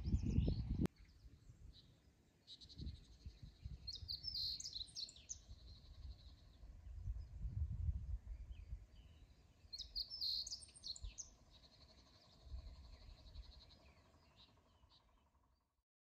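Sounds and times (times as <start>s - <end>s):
wind rumbling on microphone: 0.0s - 1.7s, 2.6s - 11.3s, 12.2s - 13.8s
birds chirping: 0.0s - 7.4s, 8.2s - 15.6s.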